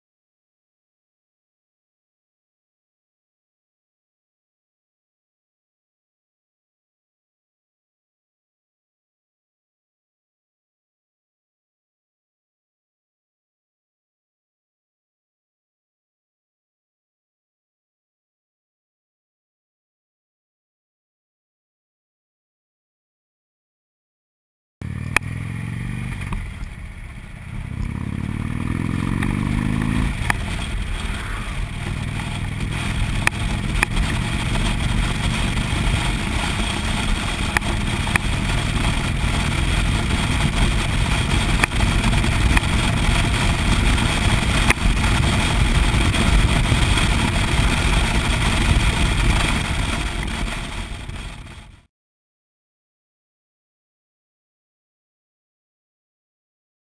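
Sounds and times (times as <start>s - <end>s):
motorcycle engine: 24.8s - 51.9s
wind rush: 25.4s - 51.8s.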